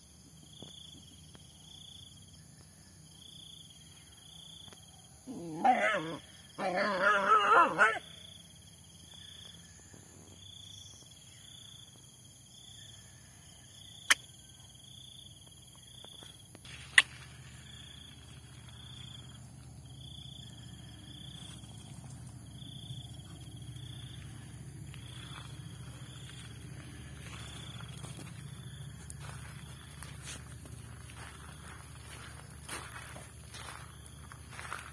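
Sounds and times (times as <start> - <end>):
insects chirping: 0.0 - 34.9
high-pitched insect drone: 8.4 - 34.9.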